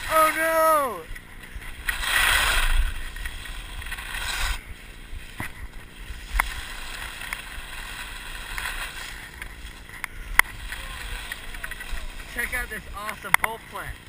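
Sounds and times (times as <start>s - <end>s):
skis scraping on snow: 0.0s - 14.0s
wind rumble on microphone: 1.0s - 13.0s.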